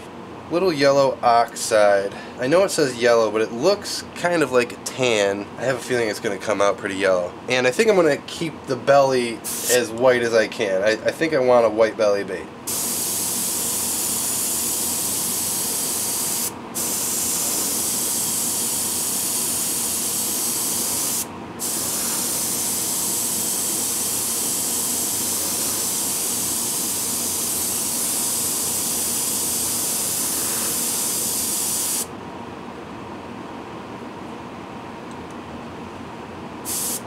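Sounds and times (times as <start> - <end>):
airbrush hissing: 9.4 - 9.8, 12.7 - 32.1, 36.7 - 37.0.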